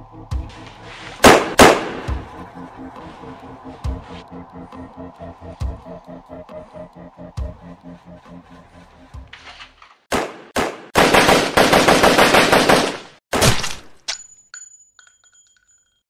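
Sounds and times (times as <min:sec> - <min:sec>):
single gunshots: 0:01.2 - 0:02.3, 0:10.1 - 0:13.9
rapid automatic gunfire: 0:10.1 - 0:13.2
light metallic clinks: 0:14.1 - 0:16.0.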